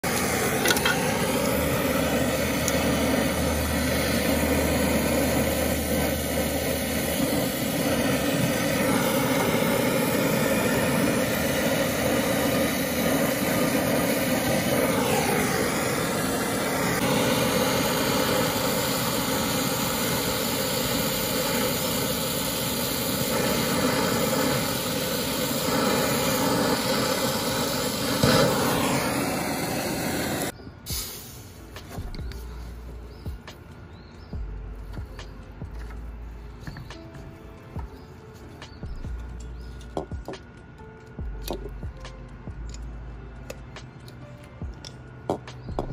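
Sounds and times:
torch flame hissing: 0.0s - 32.3s.

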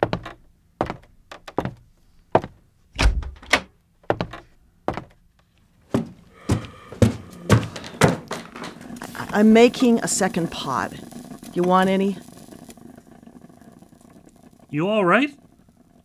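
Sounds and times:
objects knocking and clicking: 6.5s - 10.4s.

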